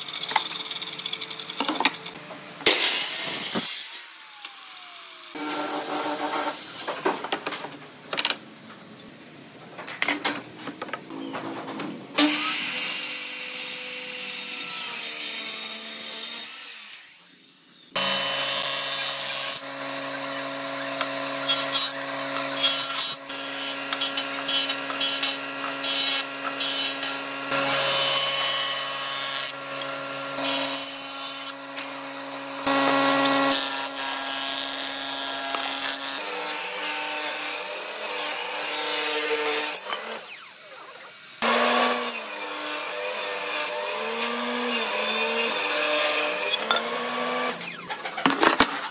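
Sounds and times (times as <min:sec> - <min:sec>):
circular saw cutting wood: 0:00.0 - 0:07.1, 0:12.2 - 0:48.2
table saw ripping wood: 0:02.6 - 0:07.5, 0:18.0 - 0:40.5, 0:41.4 - 0:48.9.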